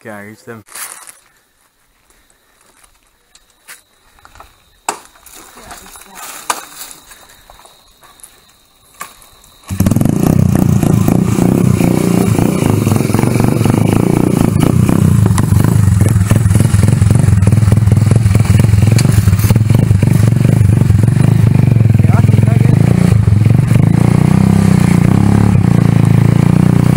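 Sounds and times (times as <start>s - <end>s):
small motorcycle engine running: 9.7s - 26.9s.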